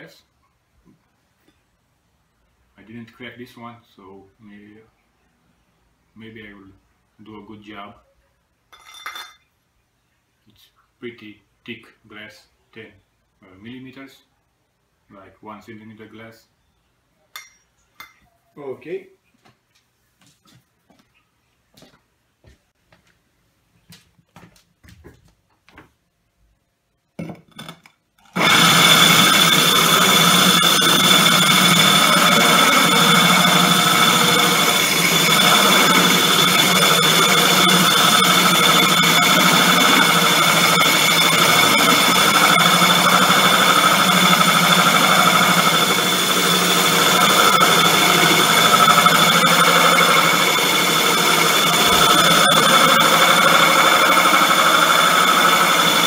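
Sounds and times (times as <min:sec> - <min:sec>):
power drill grinding through glass: 0:28.2 - 0:56.0.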